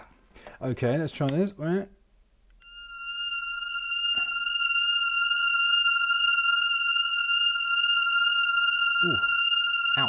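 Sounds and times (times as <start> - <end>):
synth holding high note: 2.6 - 10.0.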